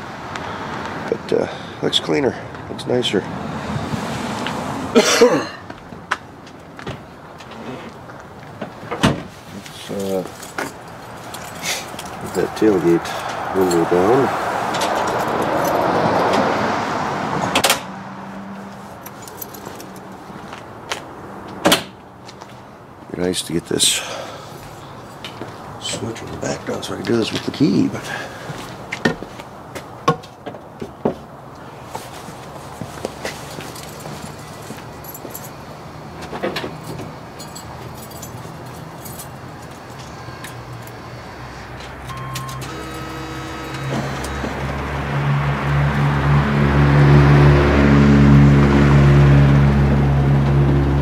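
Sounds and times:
keys jangling: 9.9 - 13.9, 14.8 - 16.0, 19.0 - 20.2, 33.6 - 35.6, 36.8 - 41.0
window motor humming: 42.5 - 45.0.

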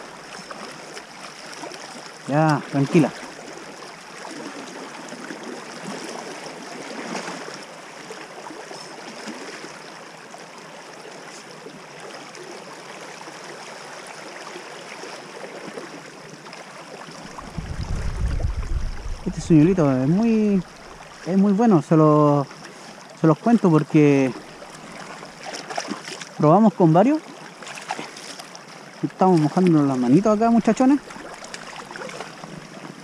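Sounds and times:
shallow river rushing over gravel: 13.3 - 33.0.

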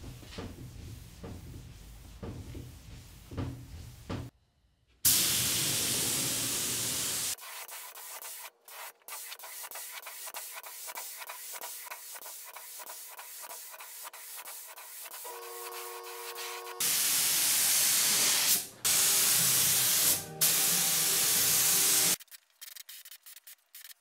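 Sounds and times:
spray gun hissing: 5.1 - 14.4, 16.1 - 22.2
sanding block scratching metal: 7.4 - 16.8.

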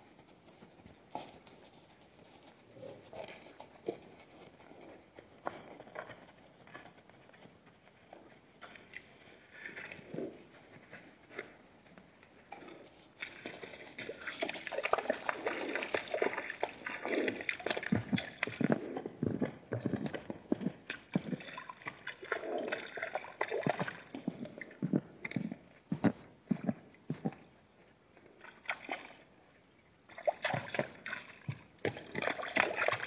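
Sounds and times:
animals slurping water: 12.5 - 27.5, 28.4 - 29.3, 30.1 - 33.0
splashing in water: 13.2 - 18.6, 30.1 - 33.0.

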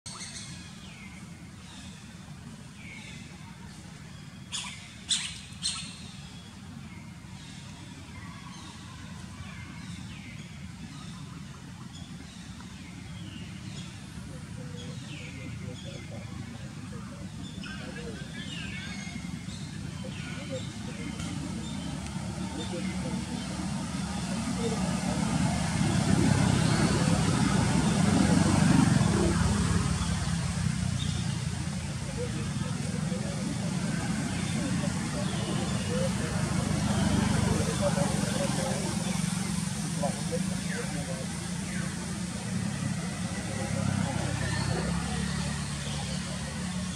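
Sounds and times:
engine humming: 0.2 - 46.9.

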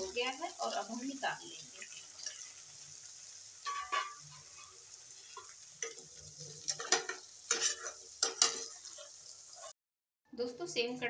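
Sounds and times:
food sizzling in hot oil: 0.0 - 9.8
metal spatula scraping: 3.6 - 9.8.

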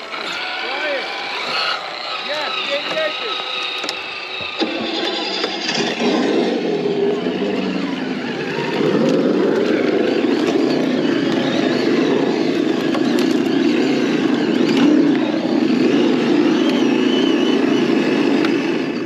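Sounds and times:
engine-like drone: 0.0 - 19.0
toy truck driving over rock: 0.0 - 19.0.

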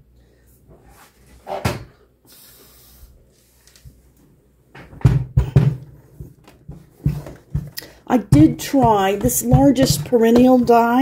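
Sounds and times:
heavy thumps and knocks: 4.8 - 11.0
machine knocking on table: 8.3 - 11.0.

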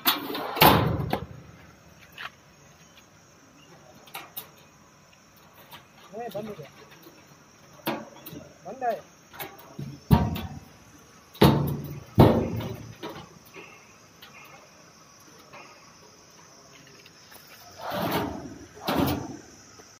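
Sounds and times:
metal drawer scraping: 0.0 - 1.4, 17.6 - 19.5
metal drawers banging shut: 0.0 - 1.6, 5.5 - 8.6, 9.3 - 14.4, 17.8 - 19.6.

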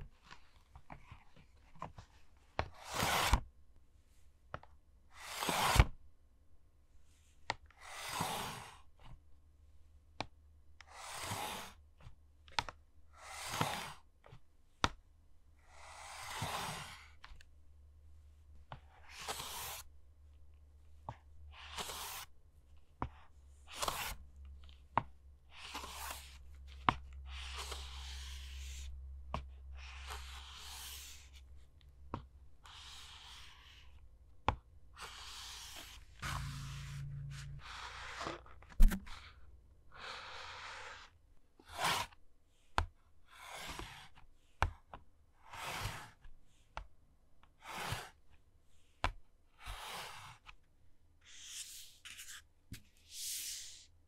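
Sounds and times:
low hum: 36.1 - 38.2.

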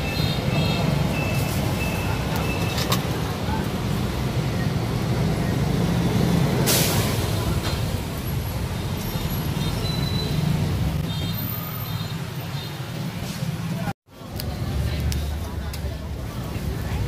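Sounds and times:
road traffic rumble: 0.0 - 17.0
short hiss: 6.7 - 7.2.

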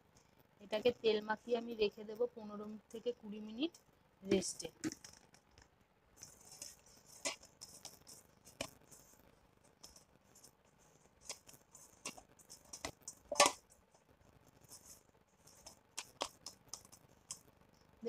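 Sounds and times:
hands handling dough: 4.8 - 17.5.

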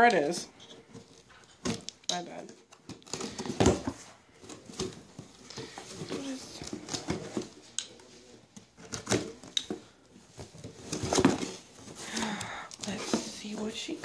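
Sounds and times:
hands rummaging in cardboard box: 2.9 - 7.6.

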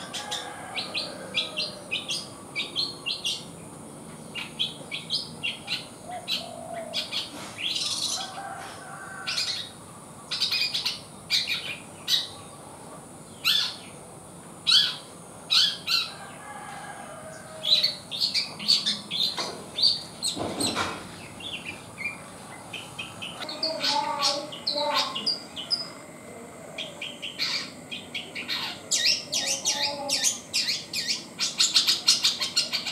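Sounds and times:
bird warbling: 13.4 - 13.9, 14.7 - 16.2, 17.4 - 32.9
young bird chirping: 13.4 - 13.9, 26.9 - 32.9.

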